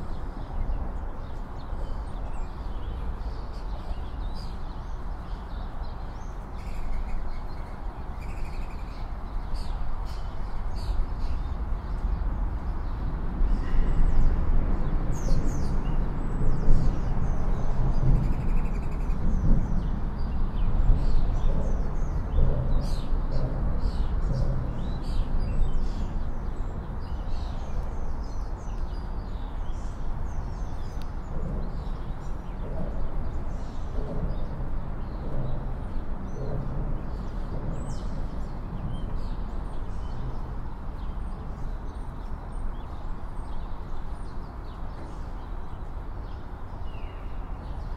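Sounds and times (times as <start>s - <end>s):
city traffic rumble: 0.0s - 47.9s
songbirds chirping: 0.0s - 47.9s.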